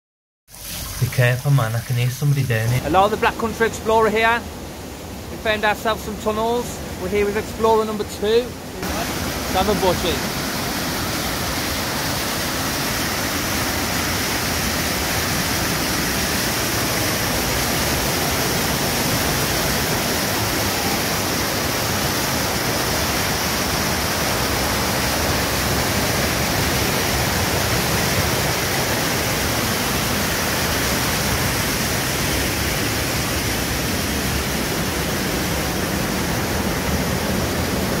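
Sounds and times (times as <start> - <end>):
water cascading over weir: 0.5 - 38.0.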